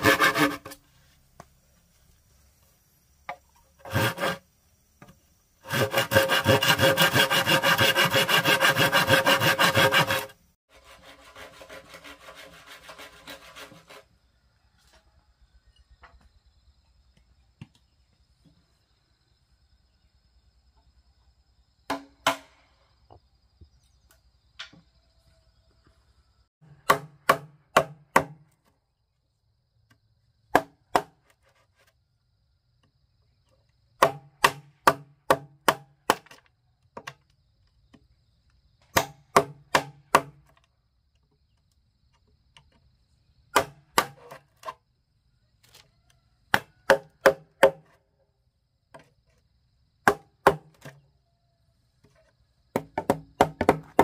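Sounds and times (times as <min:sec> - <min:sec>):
axe chopping wood with ringing: 0:21.9 - 0:22.6, 0:26.6 - 0:28.4, 0:34.0 - 0:36.4, 0:38.9 - 0:40.4, 0:43.5 - 0:44.4, 0:46.5 - 0:47.8, 0:50.0 - 0:50.9.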